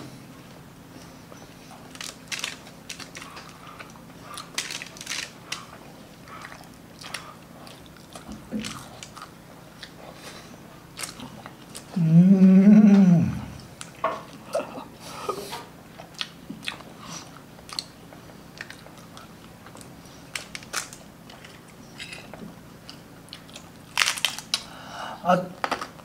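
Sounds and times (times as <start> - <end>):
crunching crispy pork: 1.7 - 12.0, 16.0 - 24.8
person humming: 11.9 - 13.7.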